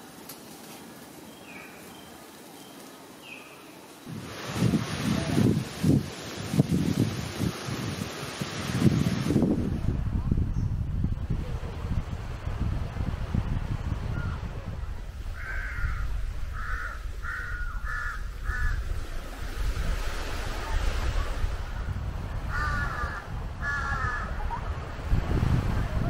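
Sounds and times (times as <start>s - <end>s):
low wind rumble: 4.0s - 26.0s
crow cawing: 15.4s - 18.8s, 22.5s - 24.4s.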